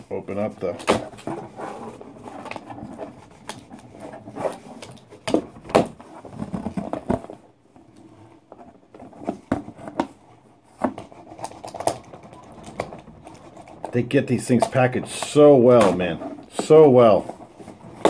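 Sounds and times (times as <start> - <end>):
cardboard box rustling: 0.9 - 7.4.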